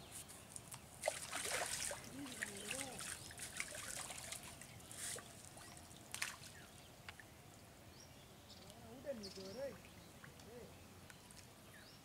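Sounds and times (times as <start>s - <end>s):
water splashing and trickling: 0.6s - 7.7s.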